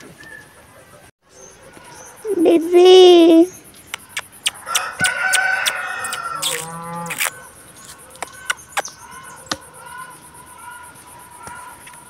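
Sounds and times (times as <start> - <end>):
rooster crowing: 4.6 - 7.5.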